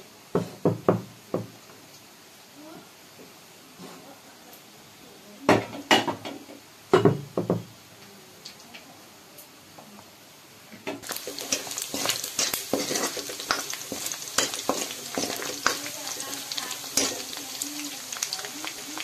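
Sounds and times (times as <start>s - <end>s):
ladle scraping wok: 11.0s - 19.0s
meat sizzling in hot oil: 11.0s - 19.0s.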